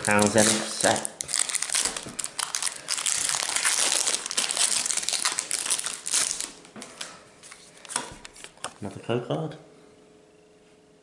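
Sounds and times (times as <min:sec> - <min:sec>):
foil wrapper crinkling: 0:00.0 - 0:06.7.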